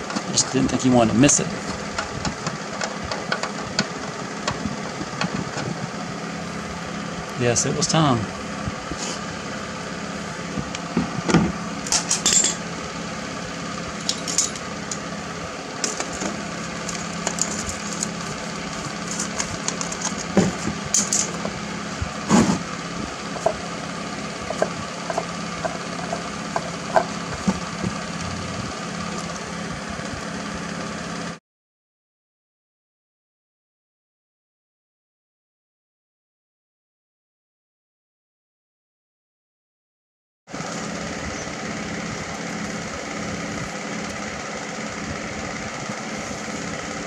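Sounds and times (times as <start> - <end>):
steady low hum: 0.0 - 31.3, 40.5 - 47.0
metallic clicks and clinks: 14.0 - 15.0.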